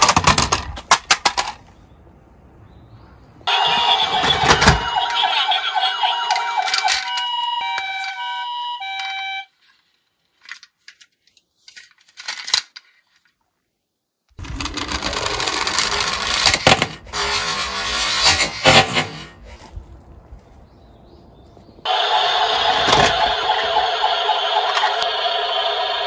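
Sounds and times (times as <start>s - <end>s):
plastic toys clattering in box: 0.0s - 1.7s, 6.3s - 8.2s, 10.4s - 13.1s, 14.4s - 19.2s
toy siren two-tone wail: 3.5s - 9.5s, 21.9s - 26.0s.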